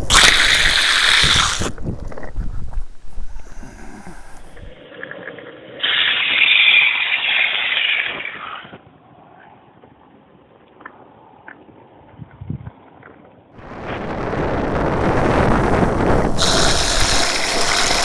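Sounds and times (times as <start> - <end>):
wind buffeting: 0.0 - 4.8, 12.0 - 12.8, 13.6 - 18.0
rumble of riding downhill: 1.4 - 5.8, 8.8 - 18.0
wheels sliding on wet tarmac: 4.3 - 10.0, 13.6 - 18.0.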